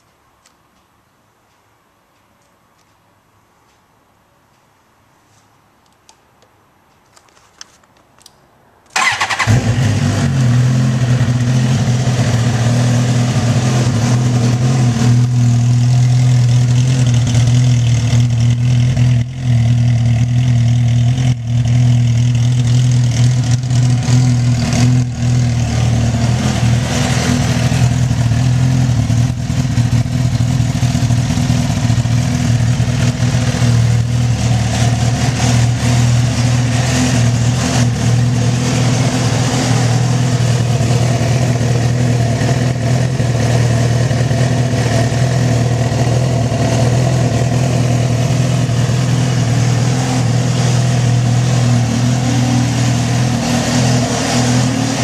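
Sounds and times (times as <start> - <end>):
motorcycle engine idling: 11.1 - 49.8.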